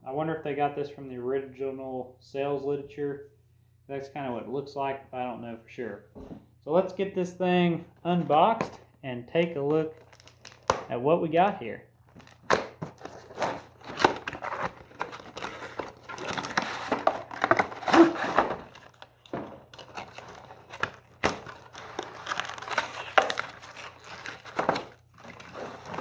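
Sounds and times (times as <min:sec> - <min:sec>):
cardboard packaging rustling: 0:09.9 - 0:10.8, 0:12.0 - 0:26.0.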